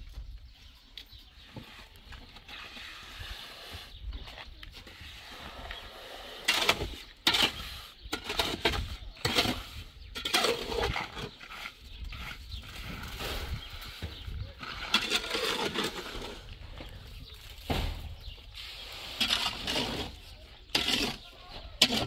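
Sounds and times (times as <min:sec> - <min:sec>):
pick and shovel chopping earth: 0:06.4 - 0:14.2.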